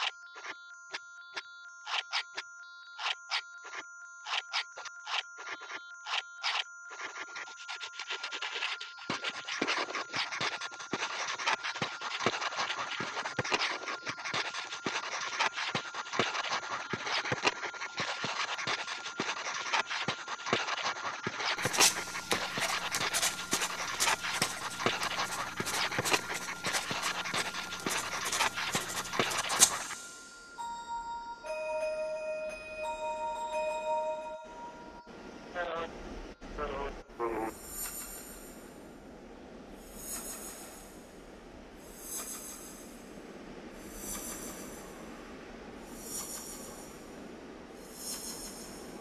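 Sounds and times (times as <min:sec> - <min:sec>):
scratchy electronic crackle: 0:00.0 - 0:30.6, 0:36.6 - 0:38.8, 0:39.8 - 0:41.2, 0:41.8 - 0:43.1, 0:43.8 - 0:45.2, 0:45.8 - 0:47.1, 0:47.8 - 0:49.0
steady high tone: 0:21.6 - 0:37.5
low hum: 0:21.6 - 0:49.0.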